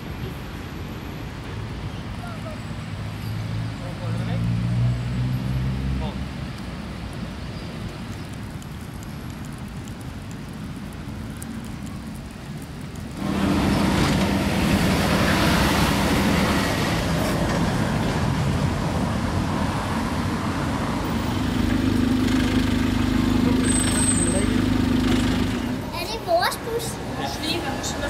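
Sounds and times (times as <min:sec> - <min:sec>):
road traffic: 0:00.0 - 0:28.0
engine hum: 0:13.2 - 0:26.1.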